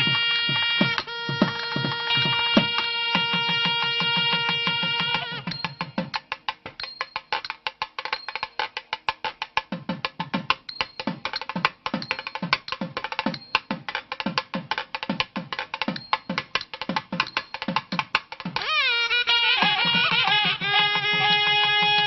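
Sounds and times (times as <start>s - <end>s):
fast hand drum rhythm: 0.0s - 6.8s, 8.6s - 18.7s, 19.3s - 22.0s.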